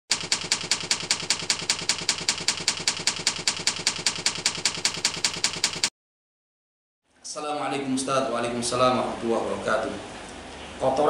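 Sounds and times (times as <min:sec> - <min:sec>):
typewriter key clicks: 0:00.1 - 0:05.9.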